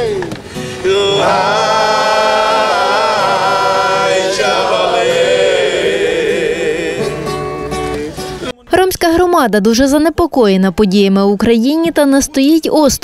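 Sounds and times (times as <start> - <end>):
acoustic guitar: 0.0 - 10.5
group of people singing: 0.7 - 8.6.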